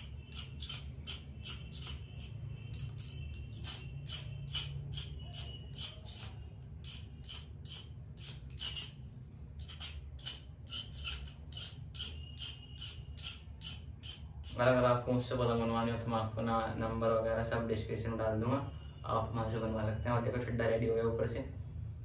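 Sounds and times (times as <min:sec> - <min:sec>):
blade scraping bamboo: 0:00.0 - 0:09.0, 0:09.6 - 0:14.6.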